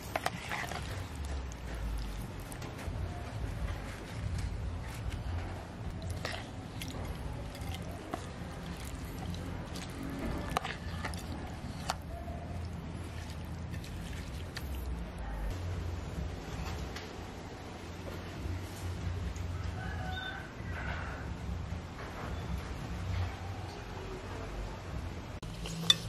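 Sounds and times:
wet food squishing: 0:00.0 - 0:15.6.

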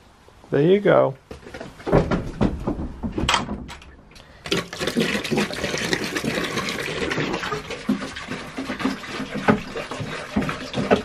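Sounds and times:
water pouring into bucket: 0:04.3 - 0:11.0.

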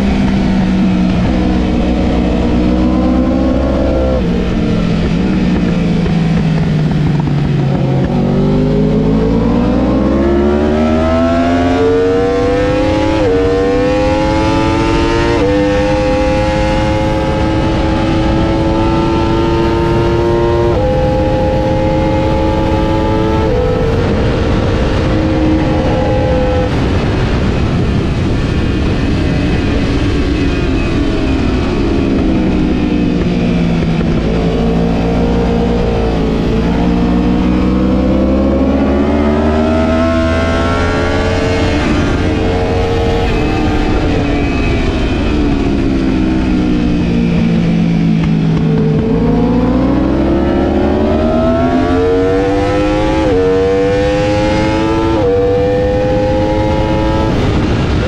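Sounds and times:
sport motorcycle engine: 0:00.0 - 0:58.0
wind noise rushing: 0:00.0 - 0:58.0.

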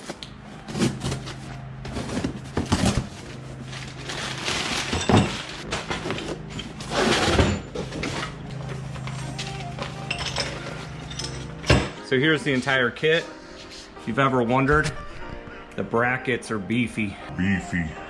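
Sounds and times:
packing paper rustling: 0:00.0 - 0:07.2.

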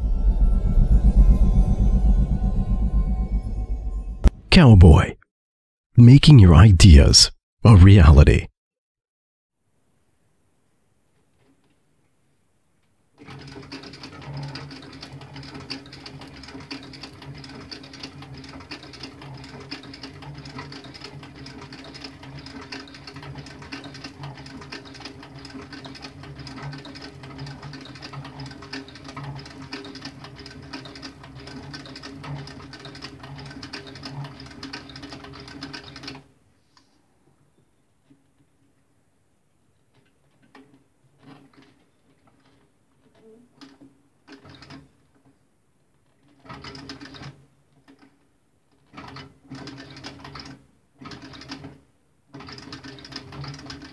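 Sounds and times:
sewing machine stitching: 0:13.2 - 0:36.2.

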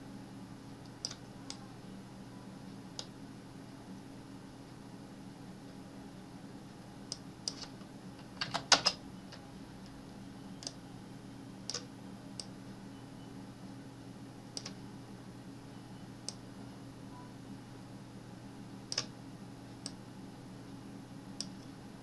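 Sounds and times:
faint steady hum: 0:00.0 - 0:22.0
keyboard typing: 0:07.1 - 0:09.0, 0:14.5 - 0:14.8, 0:18.9 - 0:19.1
mouse clicks: 0:10.6 - 0:10.8, 0:11.7 - 0:12.5, 0:14.6 - 0:14.8, 0:18.9 - 0:19.1.

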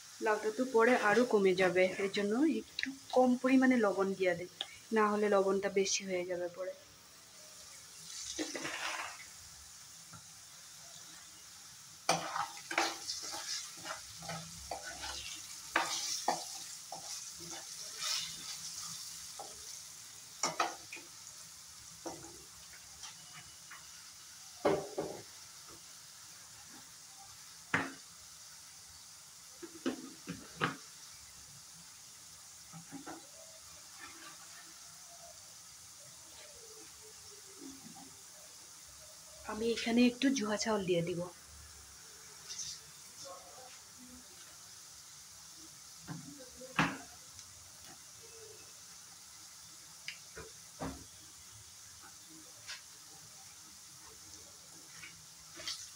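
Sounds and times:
potatoes sizzling in oil: 0:00.0 - 0:55.9
ladle scraping against pan: 0:08.3 - 0:09.3.

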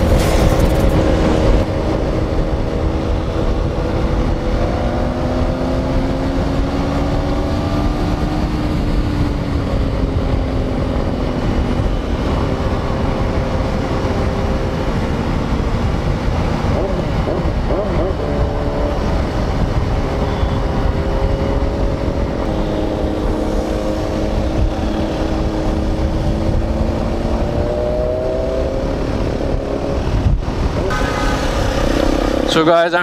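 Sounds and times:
wind rush on microphone: 0:00.0 - 0:33.0.

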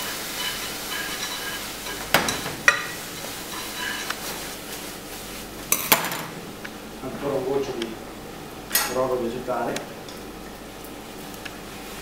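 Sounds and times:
frying pan sizzling: 0:00.0 - 0:08.7.

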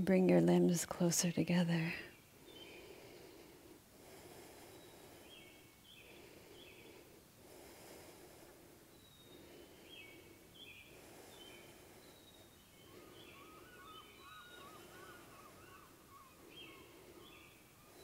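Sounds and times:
faint bird chirps: 0:04.6 - 0:07.1, 0:08.8 - 0:18.0.

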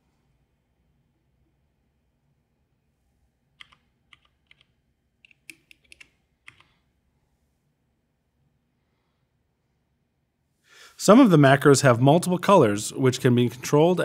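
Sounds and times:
console keys clicking: 0:03.6 - 0:06.8.

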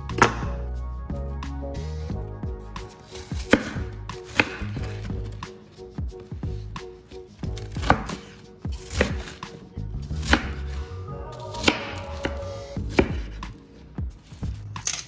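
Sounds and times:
knife slicing cabbage: 0:02.8 - 0:05.5, 0:07.2 - 0:13.6.

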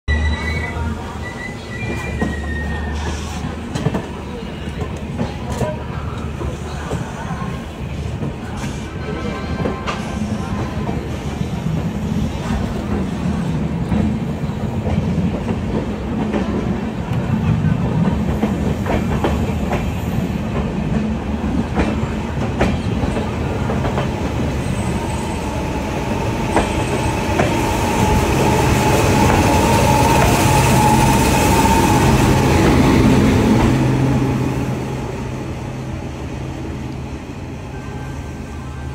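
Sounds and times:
train rumble: 0:00.1 - 0:38.9
train wheels clicking on rail joints: 0:14.8 - 0:33.8.

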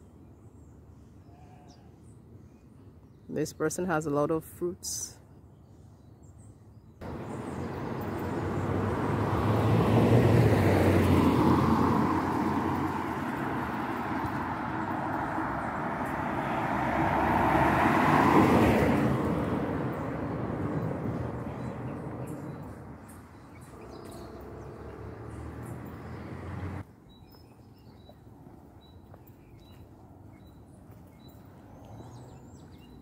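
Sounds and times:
vehicles passing on road: 0:07.0 - 0:33.0.

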